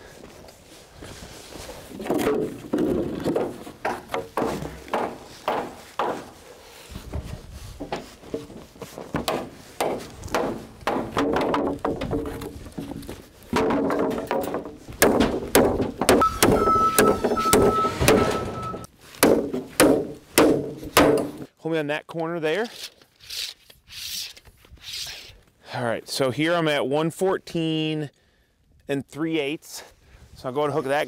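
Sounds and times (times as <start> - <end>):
wooden boards thunking and clattering: 1.9 - 6.4, 7.1 - 21.5.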